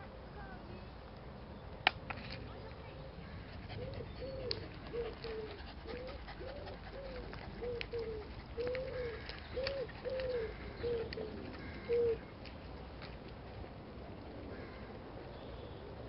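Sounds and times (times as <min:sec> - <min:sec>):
pigeon cooing: 0:03.6 - 0:12.3.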